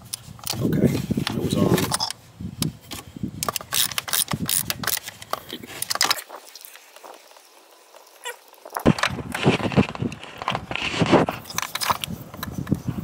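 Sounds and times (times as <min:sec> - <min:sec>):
ratchet wrench clicking: 0:03.4 - 0:05.2.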